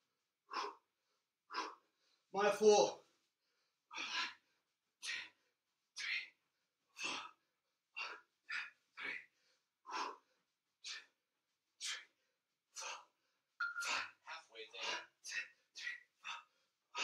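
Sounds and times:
man breathing forcefully: 3.6s - 5.4s, 7.0s - 11.2s, 12.8s - 13.2s, 13.8s - 17.0s.

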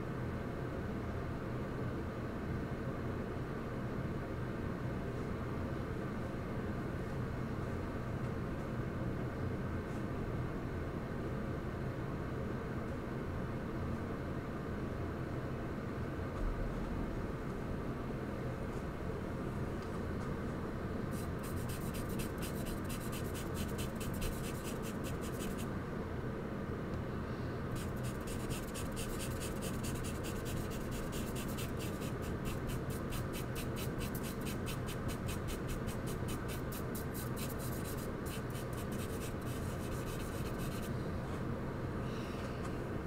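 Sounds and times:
charcoal scratching on paper: 21.2s - 25.7s, 27.8s - 40.9s.

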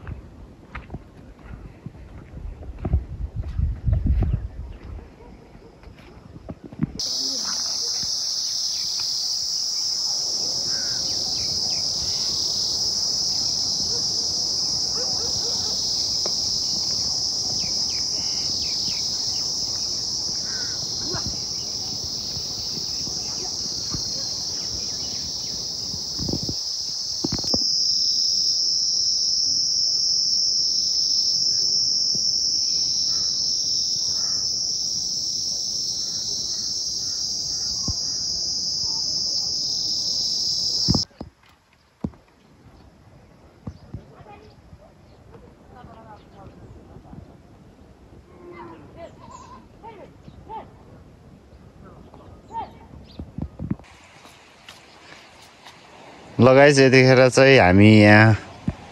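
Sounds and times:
insects chirping: 7.0s - 41.2s, 53.8s - 58.9s.

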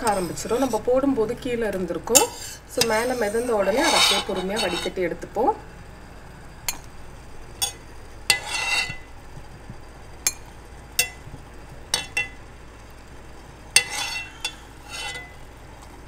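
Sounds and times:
metal skimmer clinking on dishes: 11.9s - 12.4s.

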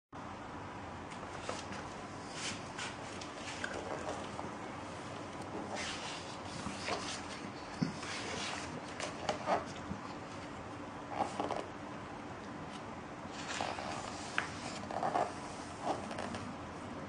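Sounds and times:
book pages turning: 12.7s - 15.3s.

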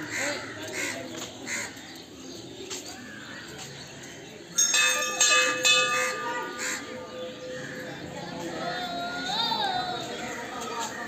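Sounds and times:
metal bell ringing: 4.6s - 6.6s.

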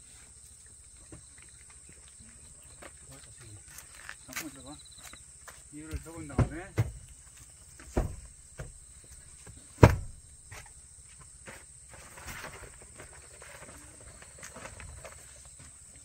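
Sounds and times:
car seat folding clunk: 9.8s - 10.2s.

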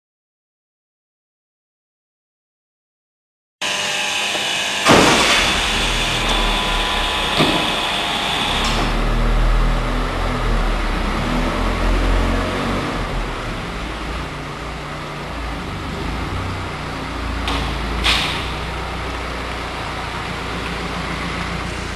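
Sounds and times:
engine starting with bang: 4.8s - 9.2s, 17.5s - 18.7s
engine idling low hum: 5.3s - 12.1s, 12.8s - 21.9s.

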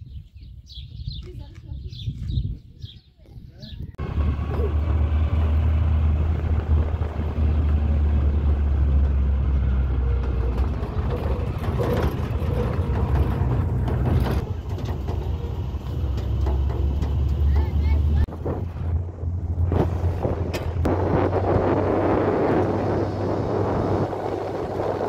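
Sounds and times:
road noise: 3.7s - 25.0s
truck engine running: 4.0s - 25.0s
knocks: 10.2s - 17.9s.

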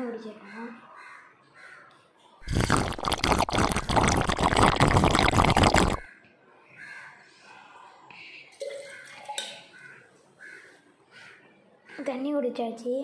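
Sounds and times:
person drinking water: 2.4s - 6.1s
water pouring and gulping: 2.4s - 6.1s, 8.6s - 9.6s.

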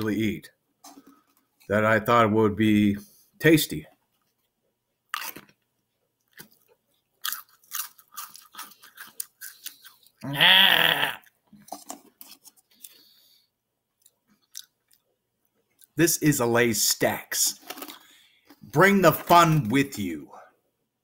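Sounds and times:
chewing crunchy crisps: 5.1s - 13.4s, 14.0s - 16.0s, 17.5s - 18.6s.

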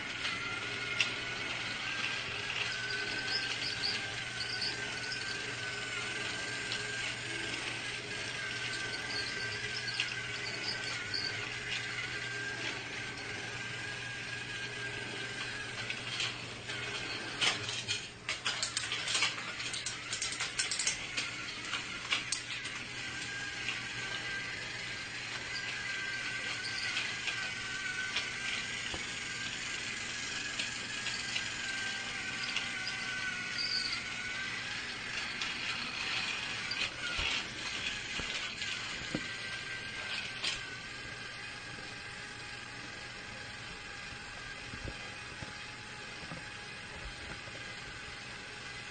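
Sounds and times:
toy train motor whirring: 0.0s - 48.9s
sharp clicks and clatter: 15.3s - 40.7s.

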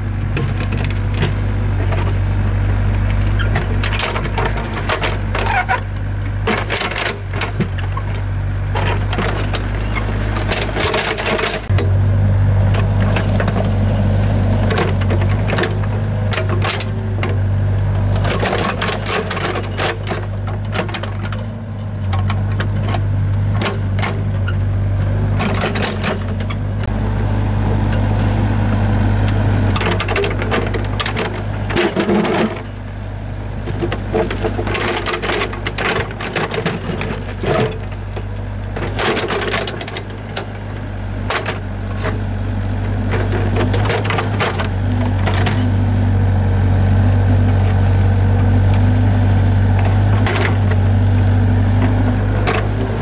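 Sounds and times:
excavator engine running: 0.0s - 53.0s
knocks and clatter: 43.1s - 45.8s.

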